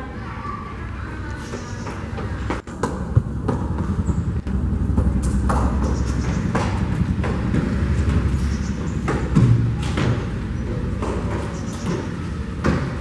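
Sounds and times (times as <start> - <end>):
running footsteps on pavement: 1.2 - 13.0
low rumble: 2.9 - 10.5.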